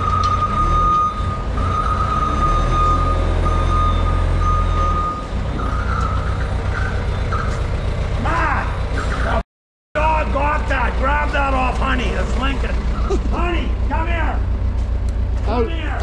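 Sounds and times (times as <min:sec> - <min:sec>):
high reversing alarm tone: 0:00.0 - 0:09.0
diesel engine running: 0:00.0 - 0:09.4, 0:10.0 - 0:16.0.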